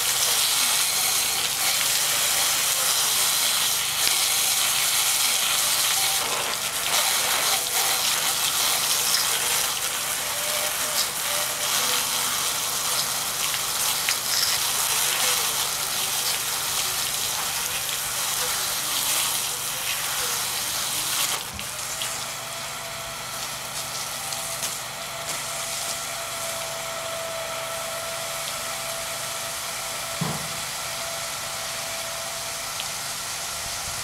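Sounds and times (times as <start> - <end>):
hose water spraying on fan: 0.0 - 34.0.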